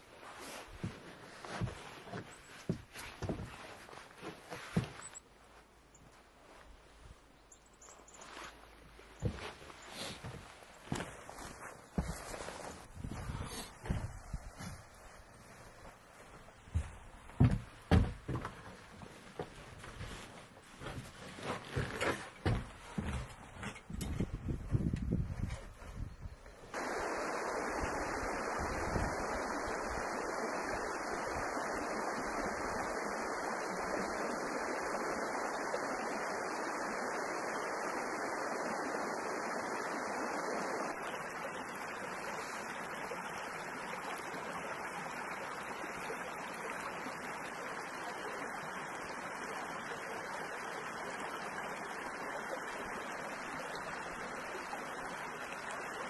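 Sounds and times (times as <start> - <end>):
stream running over stones: 0.0 - 56.0.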